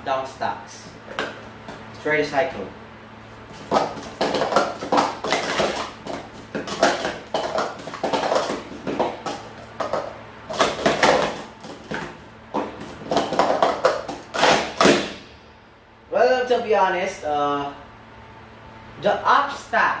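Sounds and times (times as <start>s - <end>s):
plastic cups clacking and sliding: 3.5s - 15.0s.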